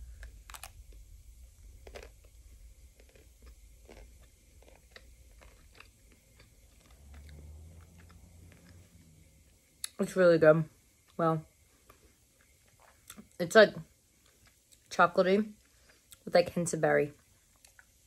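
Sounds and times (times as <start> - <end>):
chocolate coating crunching: 0.0 - 9.1.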